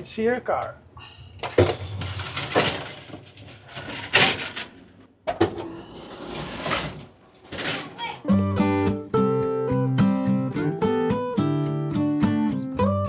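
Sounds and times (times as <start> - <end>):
doors sliding open and shut: 1.4 - 8.3.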